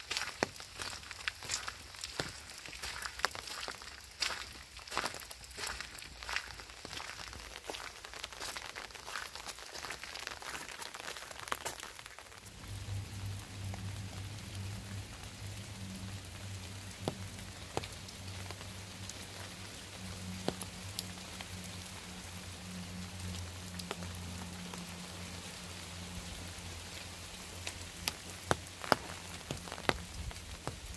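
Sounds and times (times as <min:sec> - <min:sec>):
sharp raindrop hits: 0:00.0 - 0:30.9
steady rain falling: 0:00.0 - 0:30.9
low steady hum: 0:12.4 - 0:30.9.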